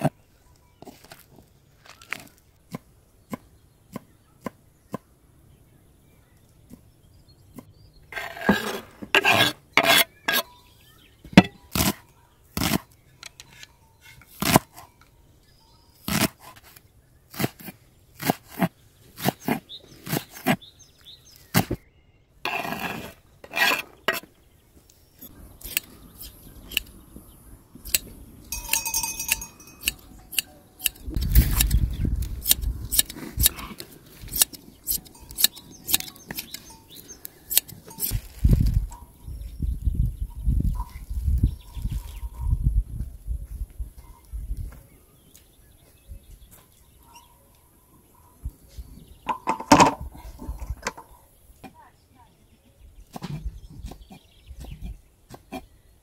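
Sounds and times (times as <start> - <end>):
shears snipping wool: 16.0 - 20.6, 25.2 - 26.9, 32.4 - 38.2
metallic clink: 28.5 - 31.1.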